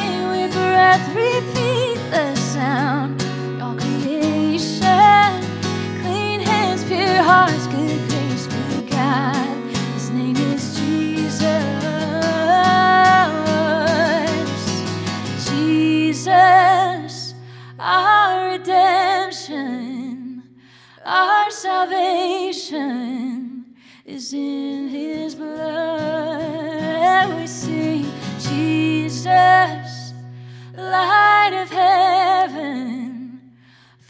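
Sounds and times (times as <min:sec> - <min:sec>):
woman singing slow worship song: 0:00.0 - 0:34.0.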